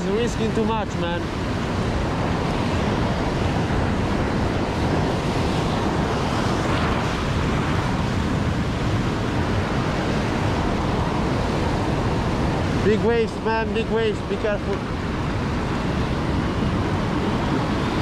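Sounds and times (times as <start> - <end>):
ocean waves breaking on rocks: 0.0 - 18.0.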